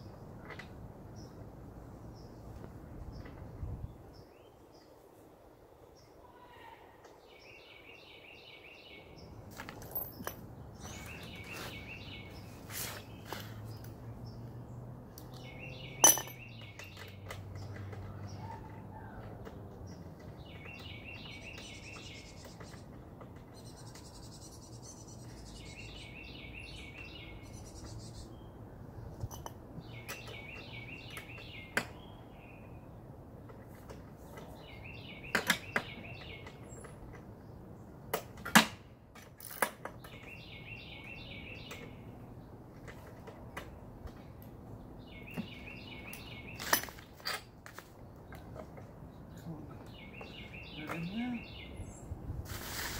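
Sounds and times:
metallic clinks of tools: 16.0s - 17.0s.

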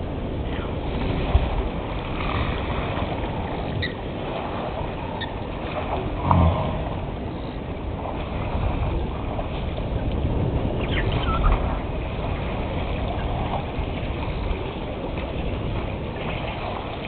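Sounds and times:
low rumbling background noise: 0.0s - 17.0s.

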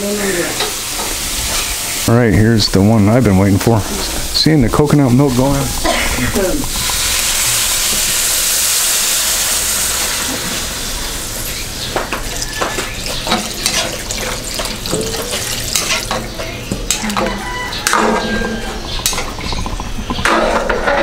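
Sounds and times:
liquid hissing in hot wok: 0.0s - 2.1s, 3.8s - 16.4s
metal spatula scraping wok: 14.9s - 16.7s.

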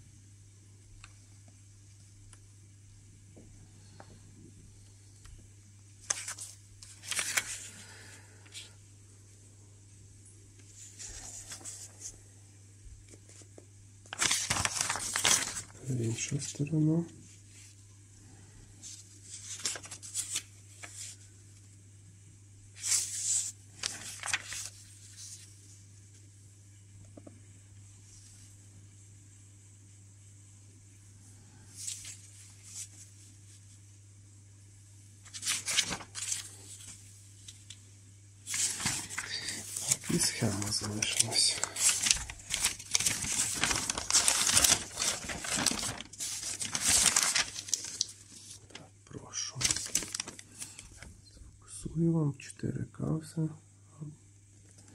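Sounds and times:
faint low hum: 0.0s - 54.9s
paper rustling and crinkling: 6.0s - 8.8s, 10.6s - 12.2s, 13.0s - 17.8s, 18.8s - 21.3s, 22.8s - 25.8s, 31.7s - 33.7s, 35.2s - 37.8s, 38.4s - 51.1s.

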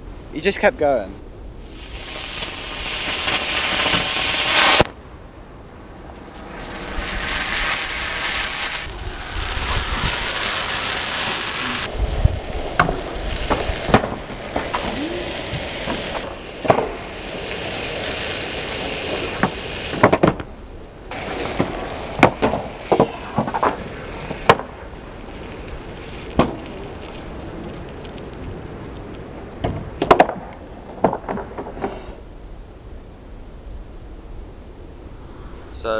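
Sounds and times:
firework fountain hissing: 1.6s - 4.9s, 5.8s - 32.2s
skateboard clattering on concrete: 12.6s - 20.5s, 21.1s - 24.8s.

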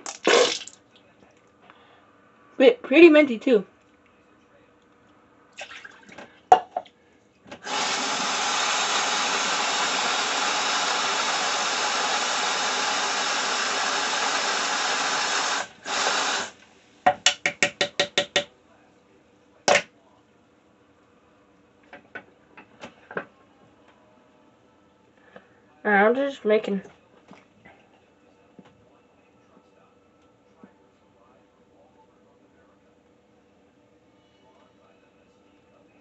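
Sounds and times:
sink tap running: 0.0s - 0.8s, 7.6s - 18.5s.

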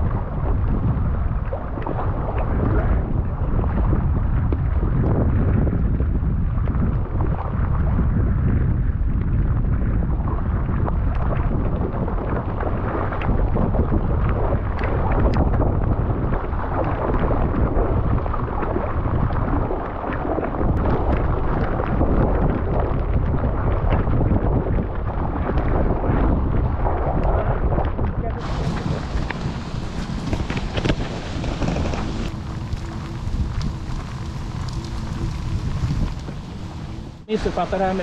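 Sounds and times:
wind buffeting microphone: 0.0s - 38.0s
faint ticks or splashes: 27.2s - 37.1s.

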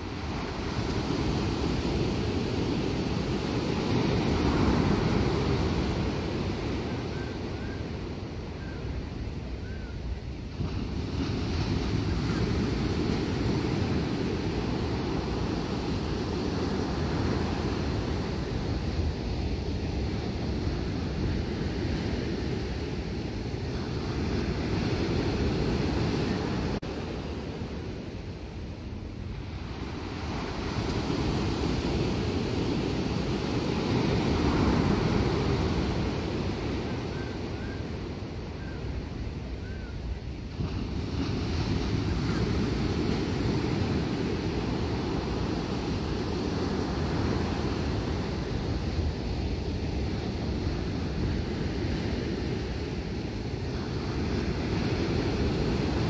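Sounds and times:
ocean surf breaking on beach: 0.0s - 56.0s
wind rumbling on microphone: 0.0s - 56.0s.

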